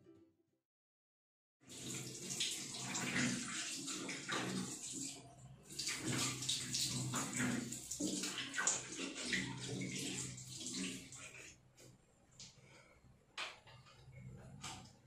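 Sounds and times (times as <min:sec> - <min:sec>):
water running from tap: 0:01.7 - 0:11.5.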